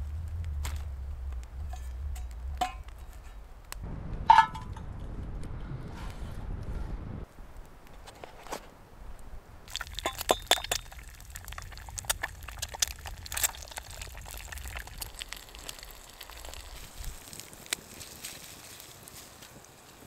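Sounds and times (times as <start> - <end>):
eggs sizzling in a pan: 9.7 - 19.9.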